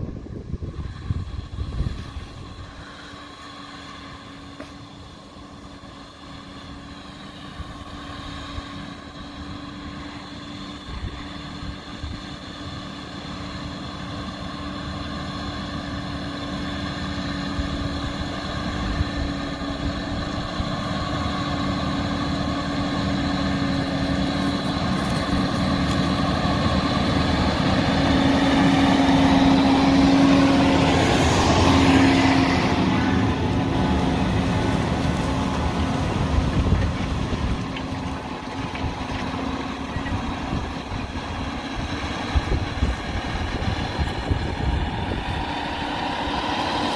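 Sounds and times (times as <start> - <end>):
tractor engine working hard: 0.0 - 46.9.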